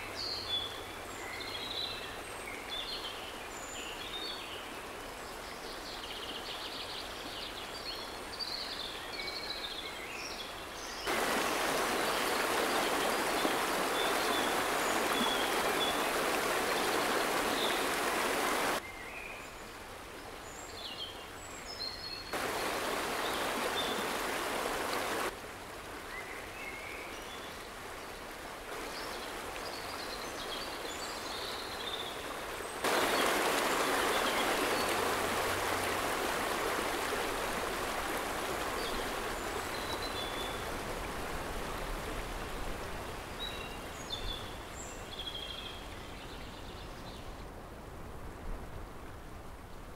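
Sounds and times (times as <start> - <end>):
river water rushing over rapids: 11.1 - 18.8, 22.3 - 45.8.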